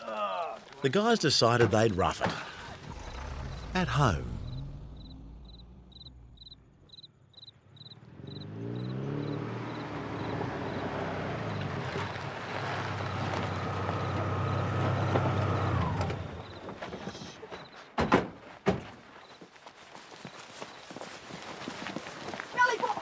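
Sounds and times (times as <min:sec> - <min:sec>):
car engine approaching: 0:02.3 - 0:16.8
faint rhythmic chirping: 0:04.4 - 0:08.9.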